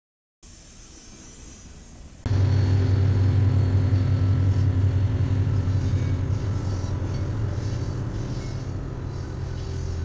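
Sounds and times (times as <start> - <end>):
diesel locomotives rumbling: 2.0 - 10.0.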